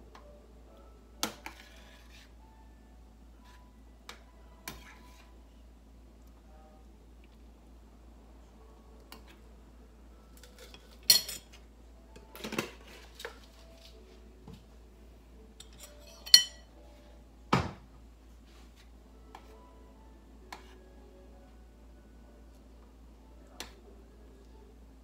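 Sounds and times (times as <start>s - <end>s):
utensil clinking on metal pan: 15.6s - 16.6s.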